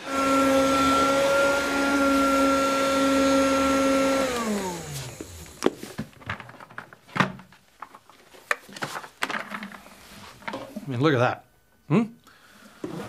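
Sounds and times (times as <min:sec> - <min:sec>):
vacuum cleaner running: 0:00.0 - 0:06.0.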